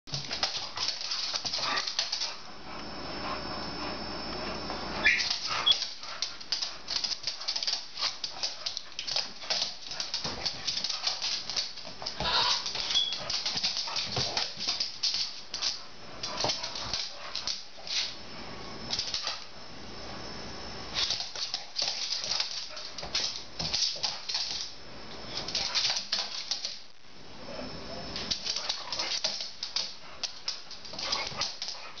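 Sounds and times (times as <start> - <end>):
claws scrabbling on floor: 0.1 - 2.4, 5.1 - 18.2
dog whining: 5.0 - 5.8.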